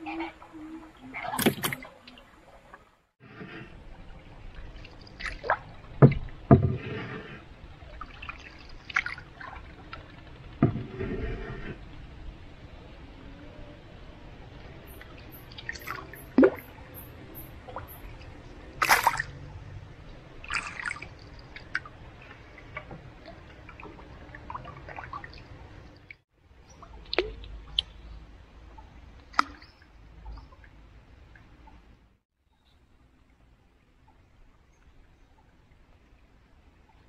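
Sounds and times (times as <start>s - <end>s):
low steady background: 0.0s - 37.0s
water dripping and plopping: 4.5s - 6.6s, 8.0s - 10.7s, 14.9s - 19.8s, 20.4s - 31.9s.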